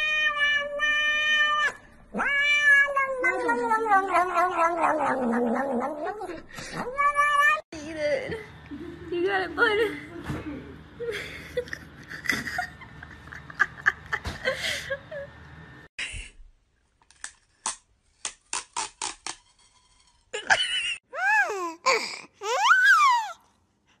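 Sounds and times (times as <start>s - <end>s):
cat meowing: 0.0s - 5.4s.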